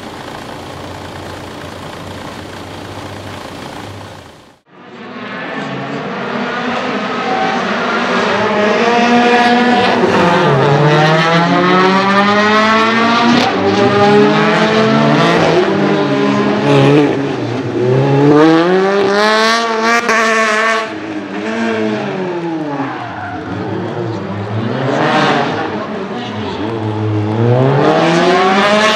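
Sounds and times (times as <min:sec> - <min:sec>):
exhaust crackles: 0:00.0 - 0:04.6
car engine revving hard: 0:26.9 - 0:28.9.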